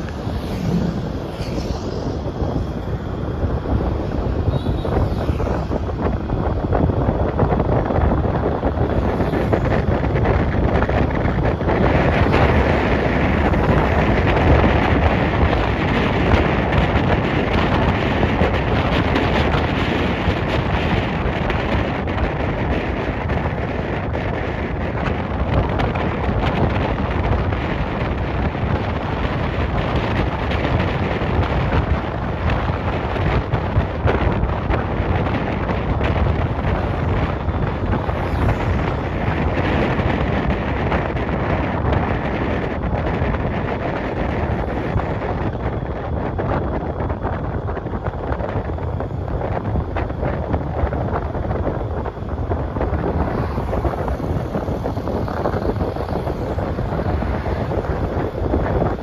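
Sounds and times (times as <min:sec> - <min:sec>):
wind rushing over microphone: 0:00.0 - 0:59.0.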